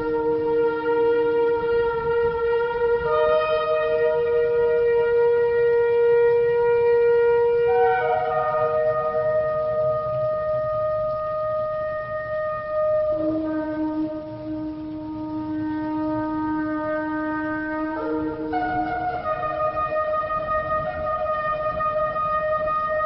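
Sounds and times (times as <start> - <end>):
shofar blasts: 0.0 - 23.0.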